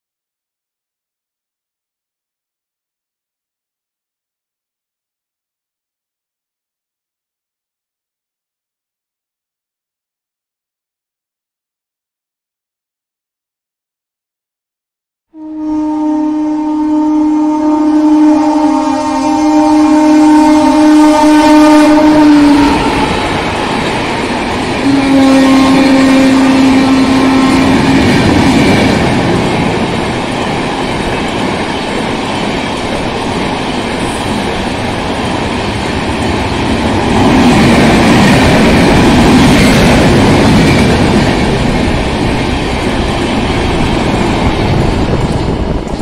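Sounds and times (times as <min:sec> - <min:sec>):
locomotive horn: 0:15.3 - 0:23.8, 0:24.8 - 0:28.4
train wheels rumbling on rails: 0:17.7 - 0:46.0.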